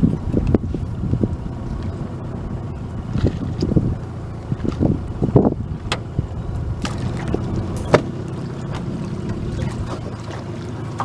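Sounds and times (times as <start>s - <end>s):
steady low rumble: 0.0s - 11.0s
water lapping against boat hull: 3.1s - 11.0s.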